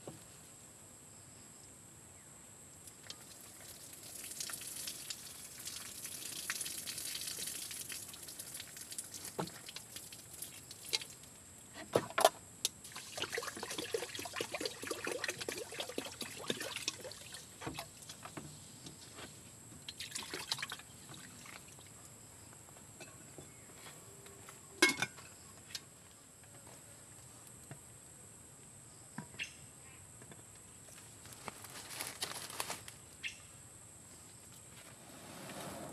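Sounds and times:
water pouring into metal pot: 0:03.1 - 0:11.2, 0:12.8 - 0:17.8, 0:19.9 - 0:20.9.

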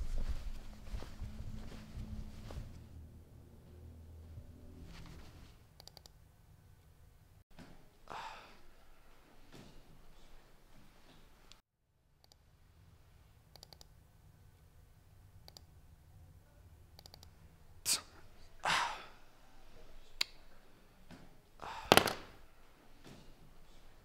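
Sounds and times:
computer mouse clicking: 0:05.8 - 0:06.2, 0:13.5 - 0:13.9, 0:15.4 - 0:15.7, 0:17.0 - 0:17.3.

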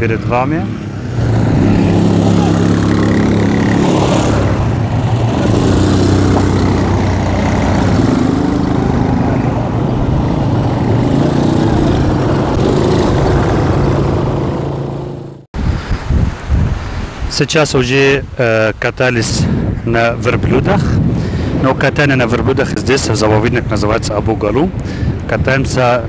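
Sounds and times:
quad bike engines driving past: 0:00.0 - 0:15.4.

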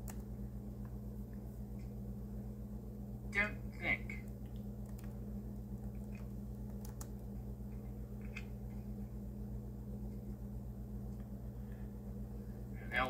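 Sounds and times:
keyboard typing clicks: 0:00.0 - 0:00.3, 0:04.2 - 0:05.2, 0:05.8 - 0:07.3
steady low hum: 0:00.0 - 0:13.0.

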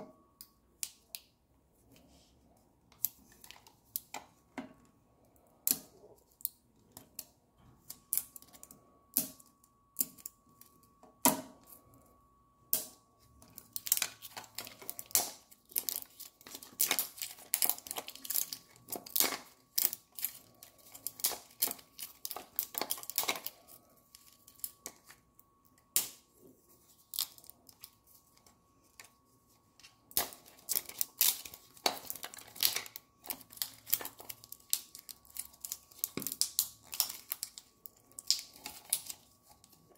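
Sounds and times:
plastic wrapping crinkling and tearing: 0:13.4 - 0:25.2, 0:25.9 - 0:39.9.

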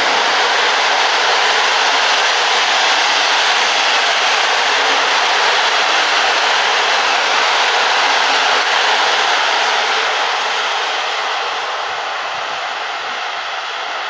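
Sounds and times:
train passing at speed: 0:00.0 - 0:14.0.

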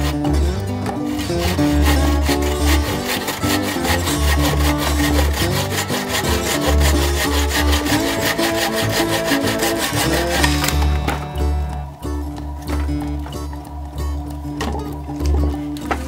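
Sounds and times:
saw rasping through log: 0:00.0 - 0:11.1
background music: 0:00.0 - 0:16.0.

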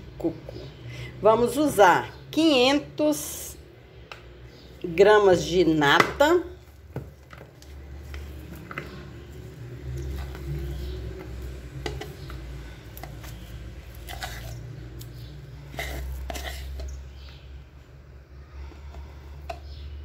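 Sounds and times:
spoon scraping plastic tub: 0:07.1 - 0:17.3.

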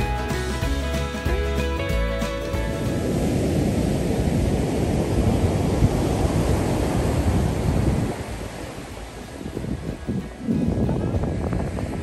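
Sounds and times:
wind buffeting microphone: 0:01.8 - 0:12.0.

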